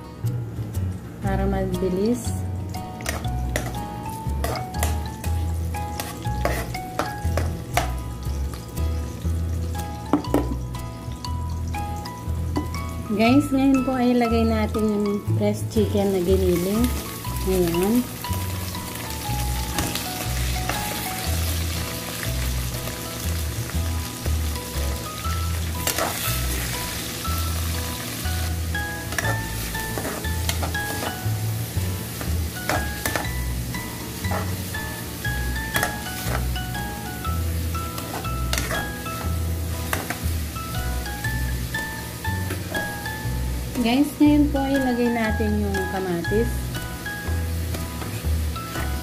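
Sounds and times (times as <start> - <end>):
light sizzle: 0.0 - 49.0
metal spatula scraping wok: 5.9 - 7.5, 25.8 - 26.9, 34.2 - 34.7
metal ladle scraping pan: 6.0 - 6.8.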